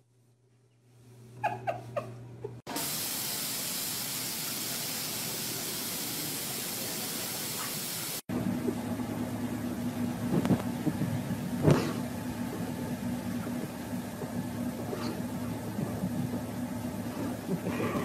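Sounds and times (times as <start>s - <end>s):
loud steady spray hiss: 2.7s - 8.3s.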